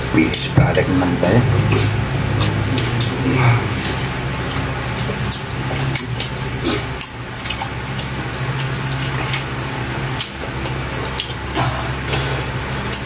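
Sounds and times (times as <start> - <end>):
steady low hum: 0.0 - 13.0
chewing and lip smacks: 2.4 - 11.7.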